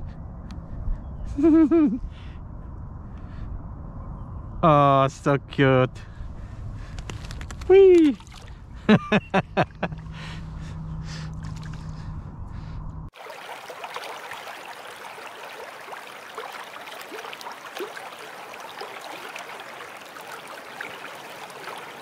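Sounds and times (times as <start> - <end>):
water trickling and babbling: 7.7 - 8.6, 13.1 - 22.0
low rumble with steady hum: 8.5 - 13.1.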